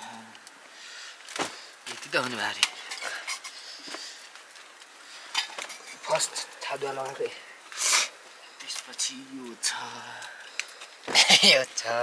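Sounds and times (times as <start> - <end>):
belongings clinking and rustling: 1.2 - 7.7.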